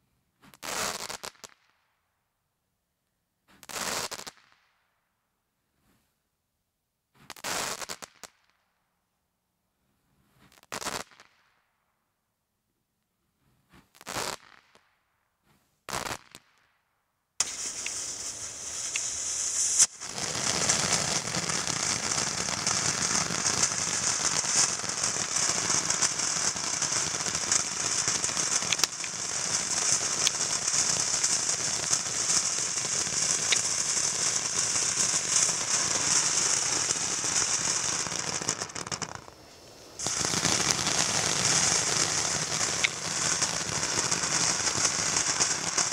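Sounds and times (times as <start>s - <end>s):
firework bangs: 17.4s - 45.9s
fountain firework hissing and crackling: 17.4s - 45.9s.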